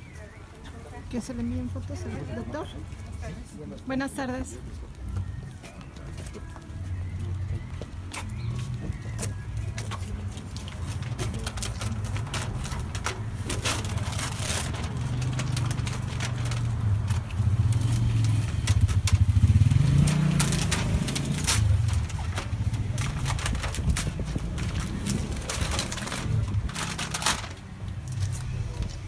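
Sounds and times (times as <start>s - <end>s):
street traffic engine rumble: 0.0s - 29.0s
paper seals being peeled and torn: 10.4s - 19.4s, 20.0s - 28.4s.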